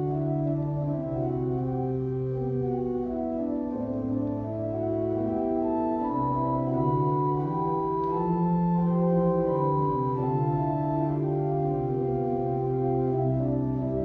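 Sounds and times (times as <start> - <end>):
church organ chords: 0.0 - 14.0.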